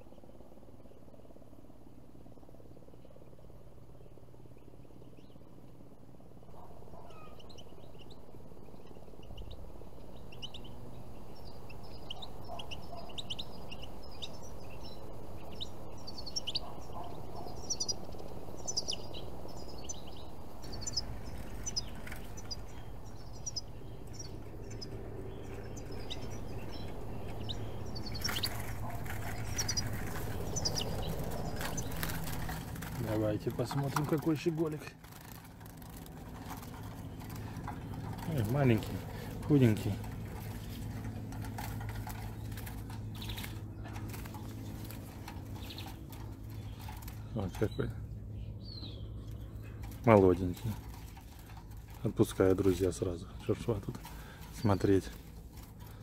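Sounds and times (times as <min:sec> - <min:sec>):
goldfinches twittering: 0:06.4 - 0:56.0
loud rustling: 0:19.6 - 0:47.6.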